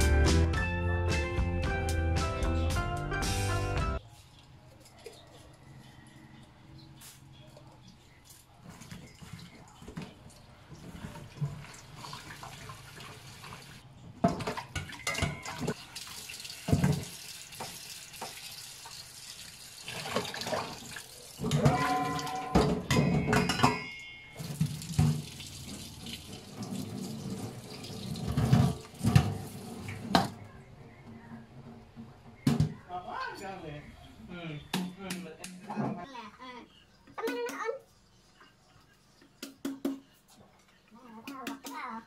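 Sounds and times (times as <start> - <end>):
tap water running into bowl: 8.9 - 22.7, 24.4 - 30.3.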